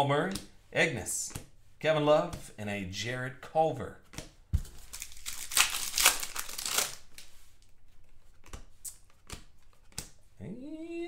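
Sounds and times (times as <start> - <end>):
wrapper crinkling and tearing: 4.8 - 7.3.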